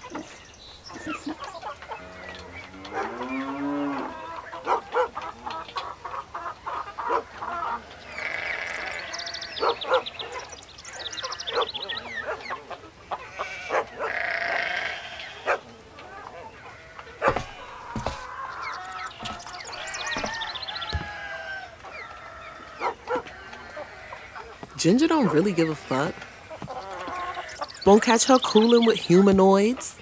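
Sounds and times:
hens clucking: 0.0s - 30.0s
small birds chirping: 0.0s - 30.0s
cow mooing: 1.9s - 4.3s, 13.4s - 15.4s.

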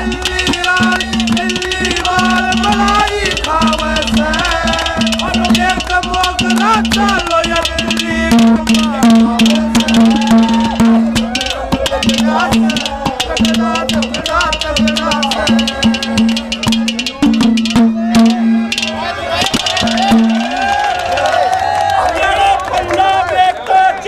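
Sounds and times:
man singing into microphone: 0.0s - 10.3s
held drone note: 0.0s - 20.9s
quick drum strokes: 0.0s - 21.2s.

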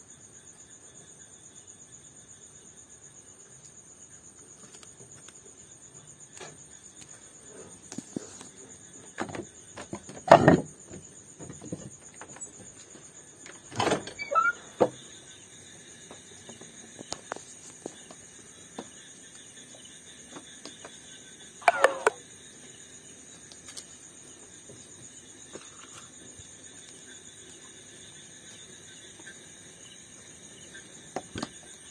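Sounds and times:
night insect chorus: 0.0s - 31.9s.

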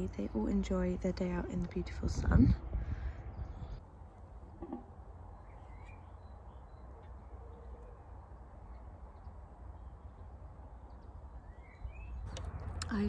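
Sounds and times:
wind rumble on microphone: 0.0s - 3.9s
faint bird chirps: 4.5s - 10.3s, 10.9s - 12.4s.

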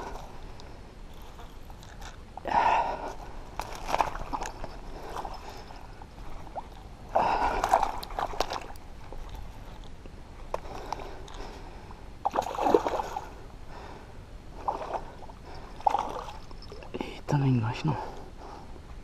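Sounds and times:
fish splashing in water: 3.6s - 9.4s, 12.2s - 13.3s.

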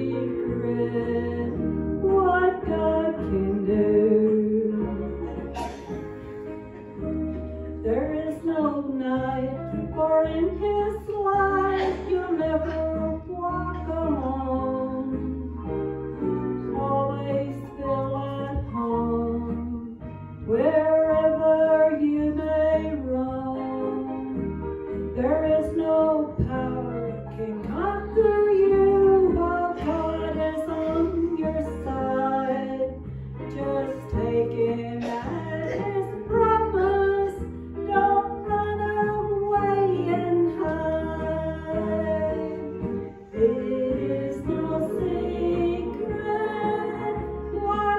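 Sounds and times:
instrumental accompaniment with bass: 0.0s - 47.9s
person singing into microphone: 7.9s - 15.6s, 25.2s - 47.9s.

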